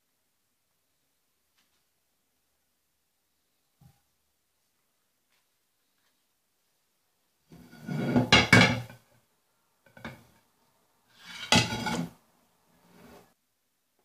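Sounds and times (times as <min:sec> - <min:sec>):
metal pot clattering on ceramic plate: 0:08.1 - 0:09.0, 0:11.2 - 0:12.1.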